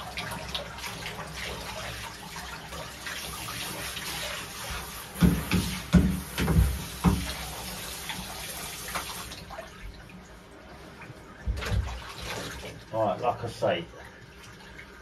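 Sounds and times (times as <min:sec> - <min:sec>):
shower spraying water: 0:00.0 - 0:10.0
water splashes: 0:00.0 - 0:15.0.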